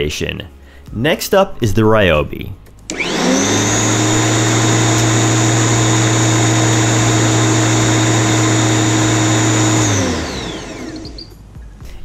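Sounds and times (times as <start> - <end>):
electric lawn mower whining: 2.9 - 11.4.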